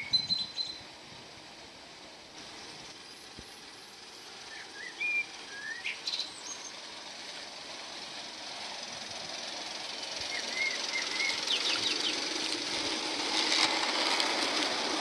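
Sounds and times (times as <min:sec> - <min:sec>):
steam locomotive hiss: 0:00.8 - 0:15.0
songbirds chirping: 0:02.8 - 0:07.6, 0:10.2 - 0:12.4.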